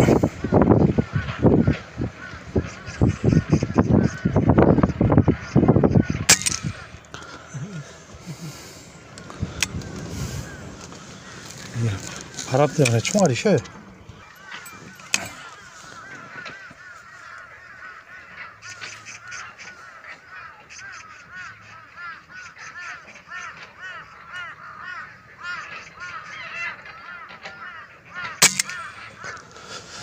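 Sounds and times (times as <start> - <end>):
magpies chattering: 0.0 - 30.0
air rifle firing: 28.4 - 28.8.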